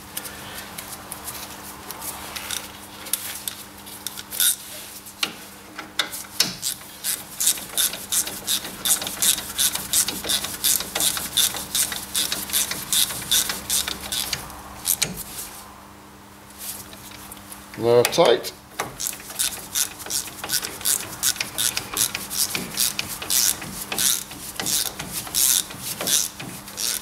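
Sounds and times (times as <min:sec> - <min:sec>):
socket ratchet clicking: 0:06.3 - 0:15.2, 0:18.8 - 0:27.0
tool knocking against metal: 0:07.4 - 0:14.2, 0:18.8 - 0:26.6.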